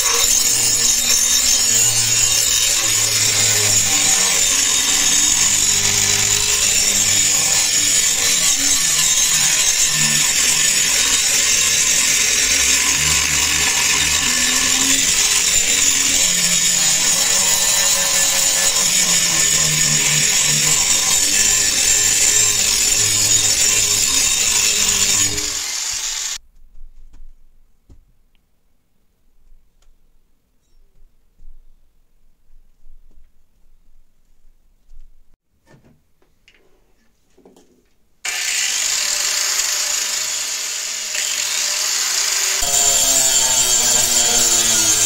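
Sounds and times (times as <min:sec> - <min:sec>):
angle grinder grinding metal: 0:00.0 - 0:26.4, 0:38.3 - 0:45.0.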